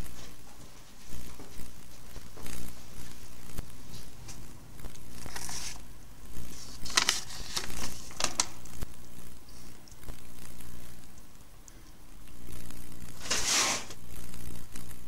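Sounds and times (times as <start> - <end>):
low steady hum: 0.0 - 15.0
paper rustling and crinkling: 5.2 - 5.8, 6.5 - 8.7, 13.2 - 14.0
sharp paper crackles: 5.2 - 5.8, 6.5 - 8.7, 13.2 - 14.0.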